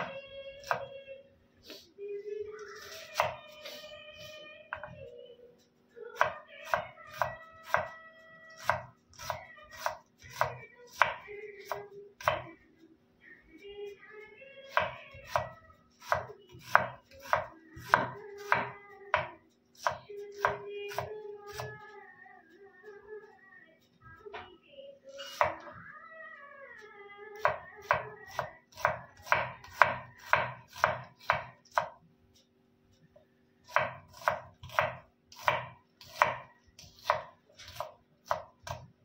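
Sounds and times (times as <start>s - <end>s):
knife chopping onion on wooden board: 0.0s - 0.9s, 2.8s - 3.6s, 6.2s - 7.9s, 8.5s - 12.5s, 14.7s - 21.8s, 25.2s - 25.7s, 27.4s - 32.0s, 33.7s - 38.9s.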